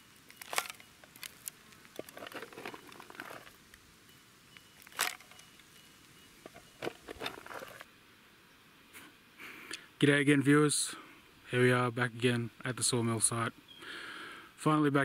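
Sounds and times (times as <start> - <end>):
tin can scraping gravelly soil: 0.4 - 3.6, 6.4 - 7.9.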